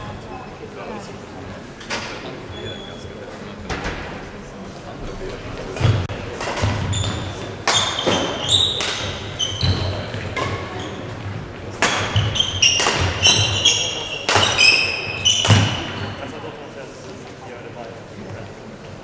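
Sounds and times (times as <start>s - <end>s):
shoes squeaking on court: 2.4s - 3.4s, 5.6s - 16.4s
racket striking shuttlecock: 5.8s - 10.7s, 11.7s - 16.0s.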